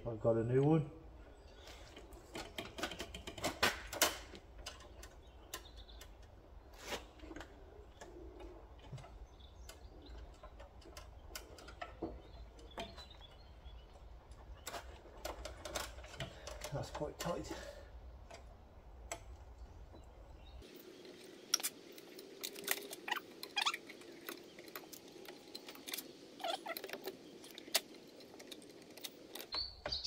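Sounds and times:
small metallic clicks and taps: 0:18.2 - 0:20.1.

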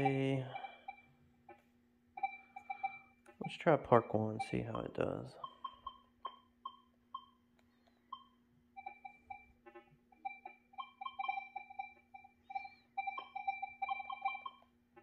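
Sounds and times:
short electronic beeps: 0:00.0 - 0:01.1, 0:02.2 - 0:07.4, 0:10.2 - 0:14.7
faint steady hum: 0:00.0 - 0:15.0.

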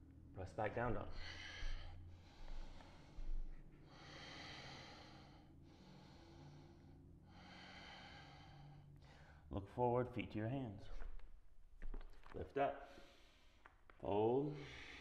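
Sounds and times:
man breathing deeply: 0:01.0 - 0:09.5, 0:12.9 - 0:13.7, 0:14.6 - 0:15.0.

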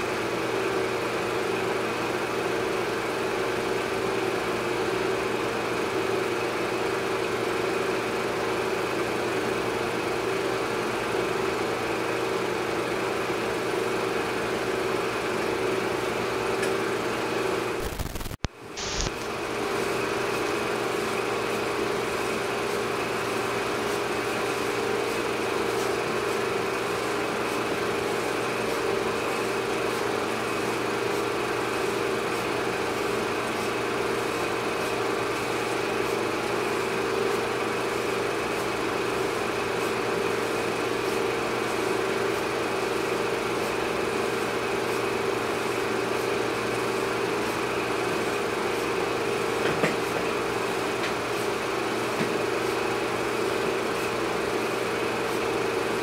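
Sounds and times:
mechanical drone with hum: 0:17.6 - 0:29.7.

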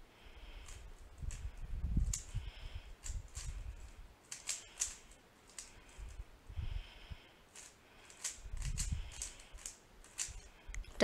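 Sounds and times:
sharp plastic cube clicks: 0:00.6 - 0:02.4, 0:04.3 - 0:05.8, 0:07.5 - 0:10.5.

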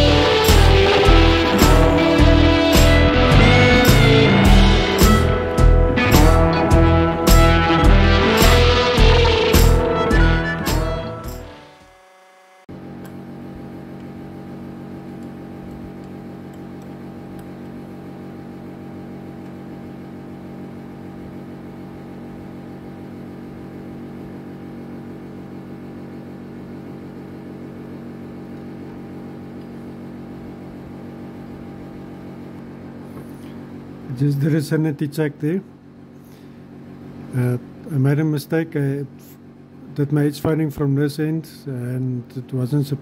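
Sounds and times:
milling machine motor humming: 0:00.0 - 0:18.5.

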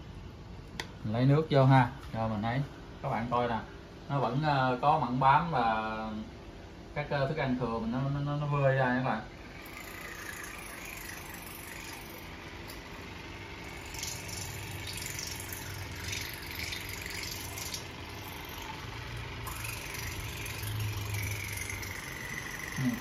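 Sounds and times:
water flosser pump buzzing: 0:09.3 - 0:23.0.

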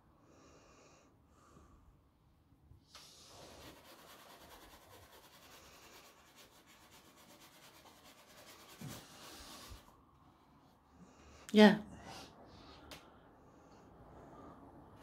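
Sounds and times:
paintbrush rubbing on canvas: 0:03.0 - 0:10.0.

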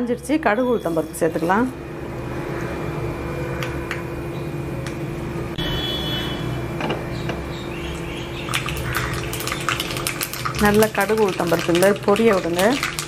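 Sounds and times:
seeds sizzling in hot oil: 0:07.9 - 0:13.0.

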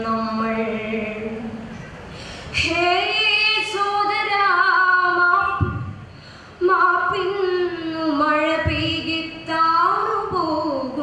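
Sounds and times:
girl breathing: 0:02.1 - 0:02.6, 0:06.1 - 0:06.6
girl singing unaccompanied: 0:02.6 - 0:05.9, 0:06.6 - 0:11.0.

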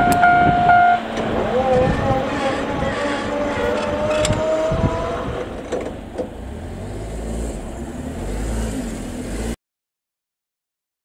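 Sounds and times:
wheel clicks over rail joints: 0:01.1 - 0:04.5.

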